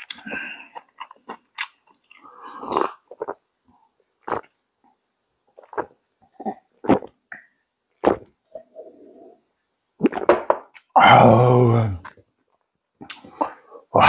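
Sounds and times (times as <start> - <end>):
person chewing food: 0.0 - 3.4, 4.2 - 4.6.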